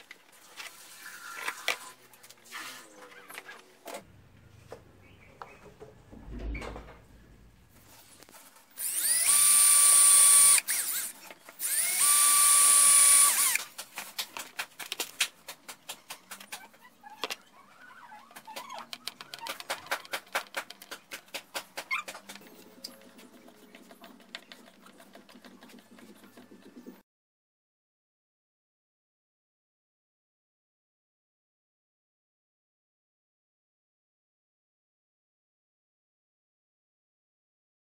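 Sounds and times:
cordless drill motor whine: 0:08.8 - 0:13.6.

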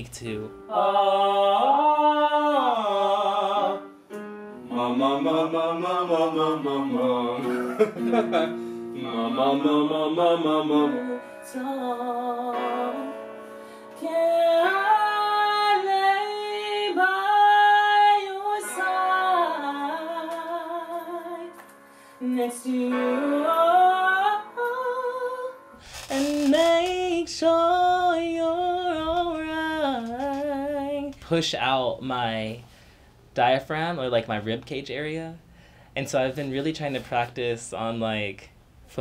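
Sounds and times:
man singing with vibrato: 0:00.6 - 0:04.0, 0:04.6 - 0:13.2, 0:25.2 - 0:31.8.

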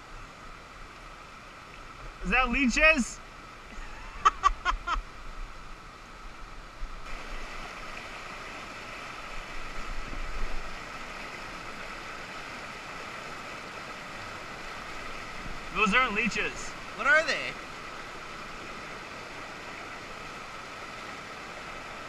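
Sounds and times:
whitewater rushing over rocks: 0:07.1 - 0:22.0.

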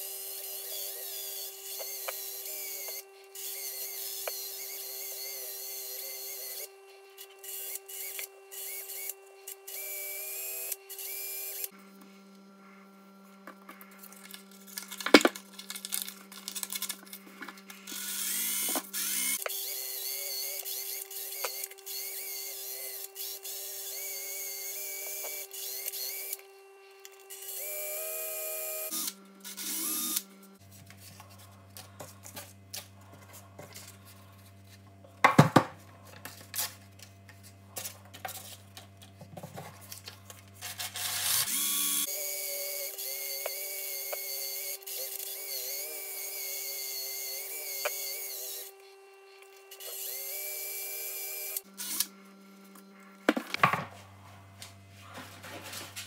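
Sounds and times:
drill whirring with sanding: 0:00.0 - 0:11.8, 0:17.8 - 0:30.7, 0:40.6 - 0:52.2.

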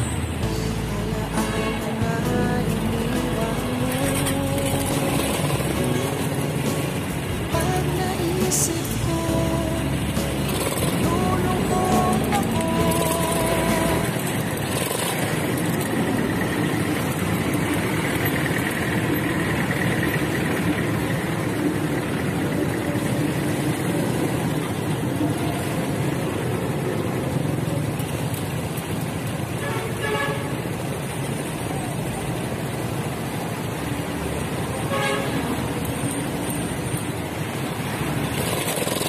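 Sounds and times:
motor tricycle engine: 0:00.0 - 0:39.0
street traffic: 0:00.0 - 0:39.0
short horn toot: 0:34.9 - 0:35.5.

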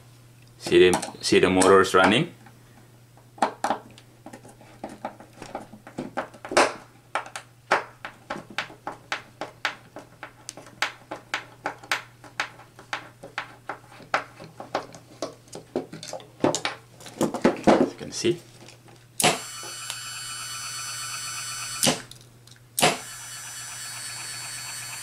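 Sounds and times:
hands tapping and clicking components: 0:03.2 - 0:17.8
small motor humming: 0:19.2 - 0:22.1, 0:22.8 - 0:25.0.

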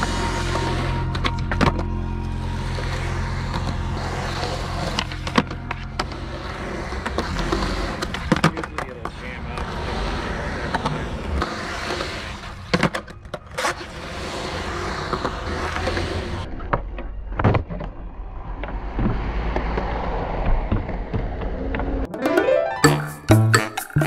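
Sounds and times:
music: 0:00.0 - 0:07.8, 0:22.1 - 0:24.0
skateboard wheels rolling on concrete: 0:00.0 - 0:22.4
skateboard clacking on ground: 0:02.6 - 0:14.0.

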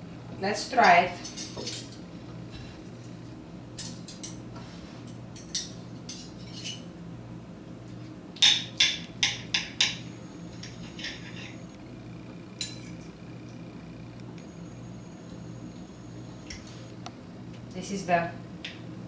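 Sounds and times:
faint low hum: 0:10.0 - 0:18.8.

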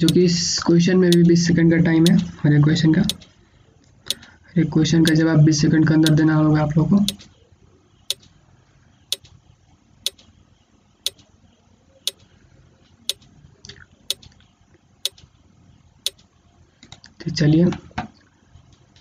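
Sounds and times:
countdown timer ticking: 0:00.0 - 0:00.2.

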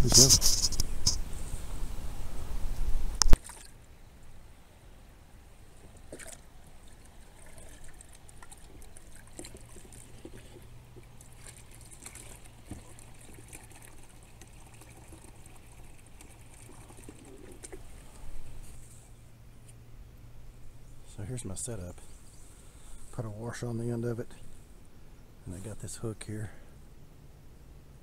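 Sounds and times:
water trickling and sloshing: 0:03.2 - 0:03.8, 0:05.5 - 0:19.2.

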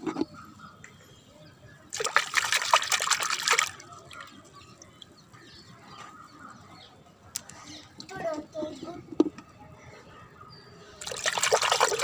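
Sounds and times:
water splashing in a bucket: 0:01.9 - 0:04.4, 0:11.0 - 0:12.0.

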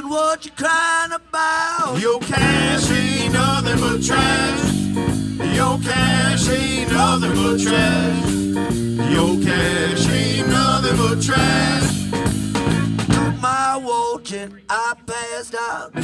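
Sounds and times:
drum kit: 0:02.0 - 0:13.5
bass guitar: 0:02.3 - 0:13.6
electric guitar lead: 0:02.4 - 0:13.4.

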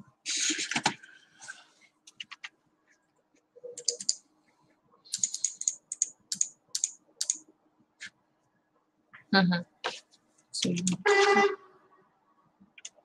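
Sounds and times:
mouse clicks: 0:05.1 - 0:07.4.

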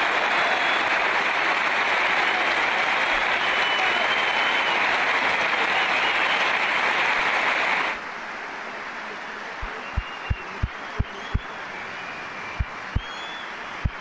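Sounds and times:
faint crowd noise: 0:00.0 - 0:14.0
stadium crowd applauding: 0:00.0 - 0:14.0.

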